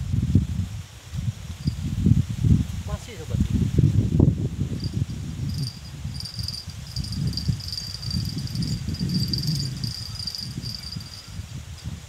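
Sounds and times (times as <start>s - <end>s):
insects trilling: 4.8s - 11.5s.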